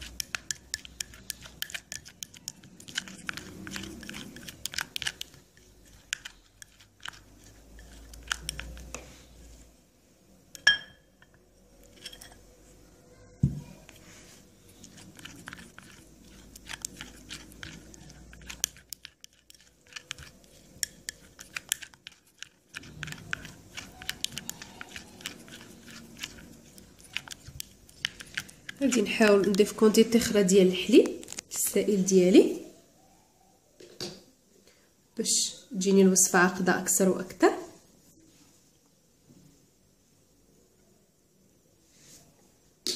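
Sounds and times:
spoon scraping ceramic bowl: 0.0s - 9.0s, 10.6s - 12.7s, 13.8s - 31.4s.

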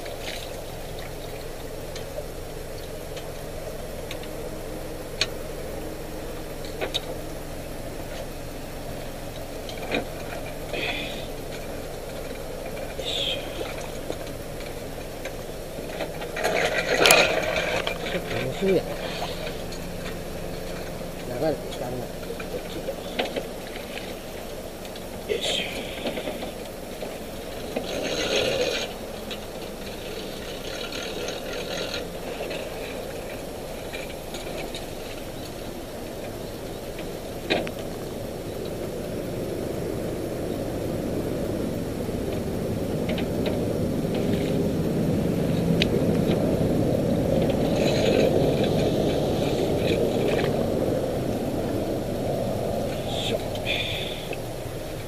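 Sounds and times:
splashing in shallow water: 0.0s - 38.5s
steady low rumble: 0.0s - 55.0s
boat hull scraping on trailer: 5.0s - 38.2s, 43.0s - 54.9s.

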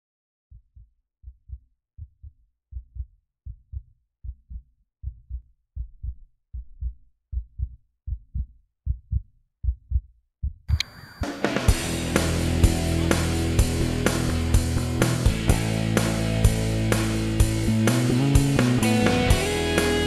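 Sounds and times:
heartbeat thumps: 0.5s - 10.8s.

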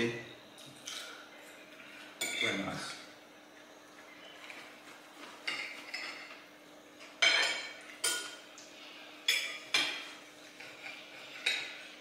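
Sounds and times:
cutlery clinking on plates: 5.4s - 6.4s, 7.1s - 8.5s, 9.3s - 11.8s.

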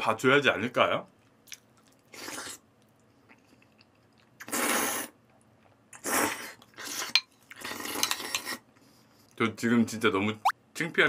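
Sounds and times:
quiet chewing: 1.2s - 4.5s
person slurping food: 2.1s - 2.6s, 6.0s - 8.6s.

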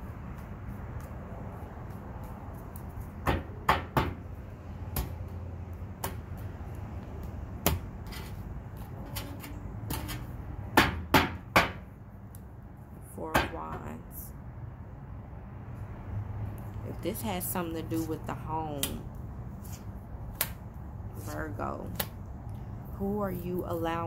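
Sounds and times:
sharp slaps and knocks: 0.2s - 6.5s, 7.1s - 8.0s, 10.8s - 12.5s, 18.7s - 19.1s, 19.7s - 20.8s, 21.8s - 22.3s
cards being shuffled: 19.5s - 20.6s.

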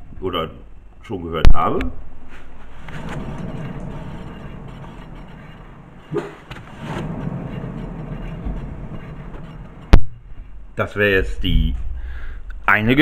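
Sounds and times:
wheel bearing low rumble: 2.3s - 11.6s.

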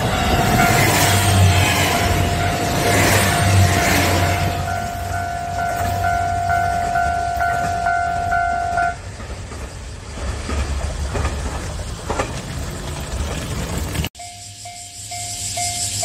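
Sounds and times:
level crossing warning bell: 0.0s - 9.0s, 14.2s - 16.0s
diesel railcar rumble: 0.0s - 16.0s.

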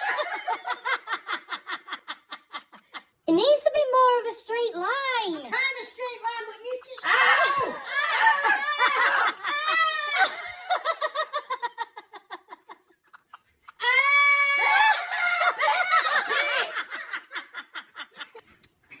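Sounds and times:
hearty laughter: 0.0s - 3.2s, 6.9s - 13.8s, 14.7s - 19.0s.

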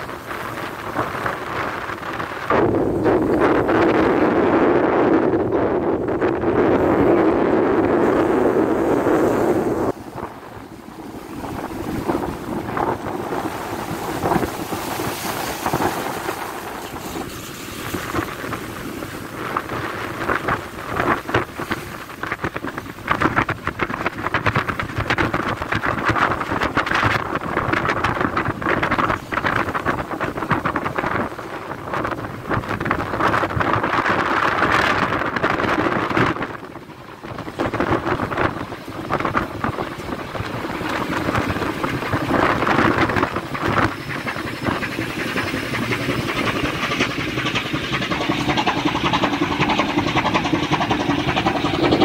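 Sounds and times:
water rushing along hull: 0.0s - 52.0s
wind buffeting microphone: 0.0s - 52.0s.

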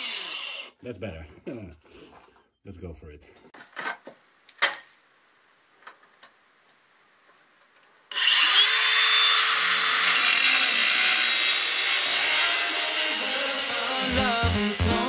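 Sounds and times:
angle grinder cutting masonry: 0.0s - 0.8s, 8.1s - 15.0s.

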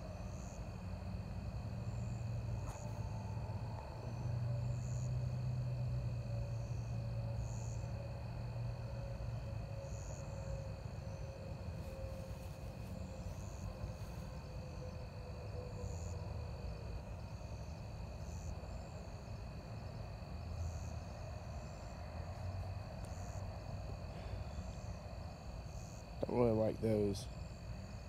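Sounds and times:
insects chirring: 0.0s - 28.0s.

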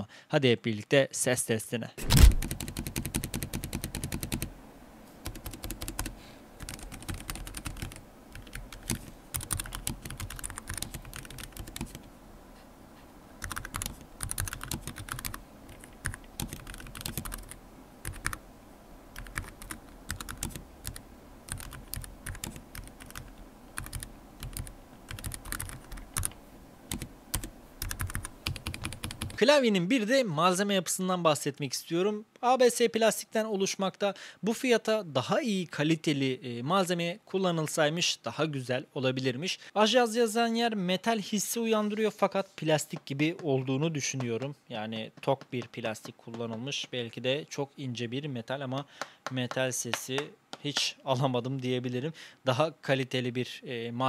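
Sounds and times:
mechanical keyboard typing: 2.1s - 4.5s, 5.2s - 12.0s, 13.4s - 18.4s, 19.2s - 29.4s.

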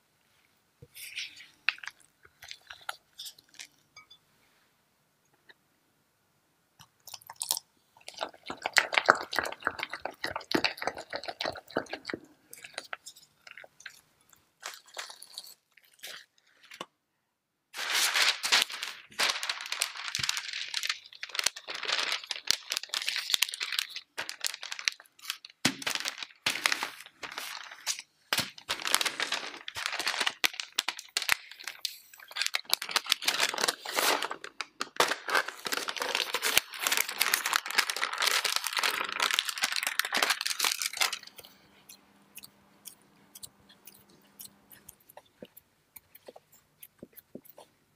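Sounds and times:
parchment paper crinkling: 17.8s - 41.6s.

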